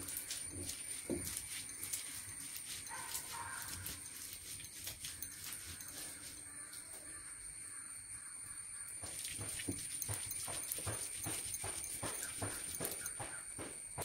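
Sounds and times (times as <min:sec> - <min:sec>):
stone roller rubbing: 0:00.0 - 0:06.4, 0:09.0 - 0:13.8
stone-on-stone knocks: 0:09.0 - 0:14.0.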